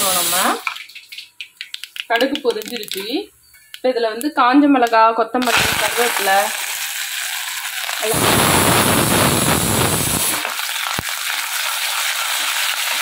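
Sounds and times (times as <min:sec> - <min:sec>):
hot oil sizzling: 0:00.0 - 0:03.1, 0:05.4 - 0:13.0.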